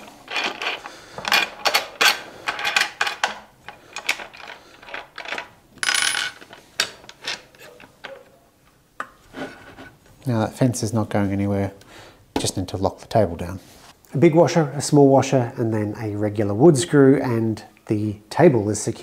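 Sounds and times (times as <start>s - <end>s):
metal scrape: 9.3s - 10.0s.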